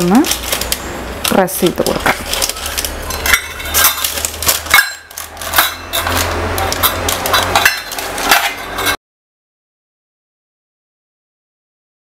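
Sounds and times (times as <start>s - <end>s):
paper rustling: 0.0s - 8.4s.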